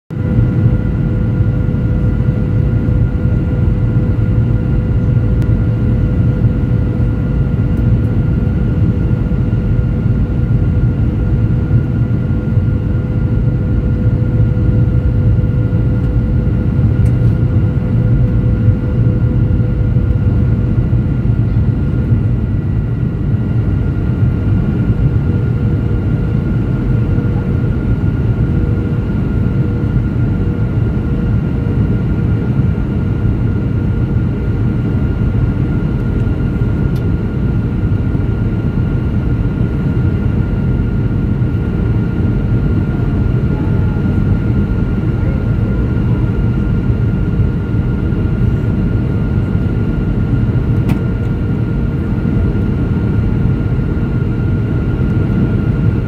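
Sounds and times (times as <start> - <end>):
airplane cabin rumble: 0.1 - 56.0.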